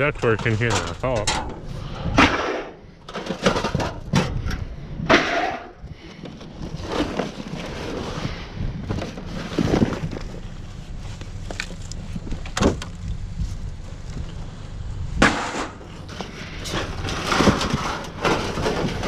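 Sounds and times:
cardboard and debris rustling: 5.9s - 14.7s, 15.3s - 19.0s
knocks of debris: 15.2s - 19.0s.

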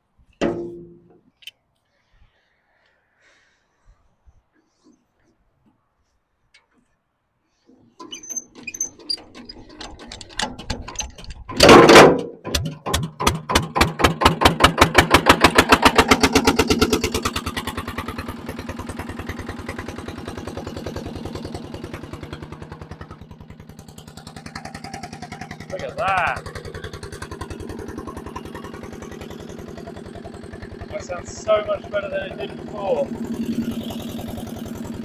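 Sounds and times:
diesel engine starting and running: 6.6s - 35.0s
diesel engine hand-cranked: 7.6s - 35.0s.

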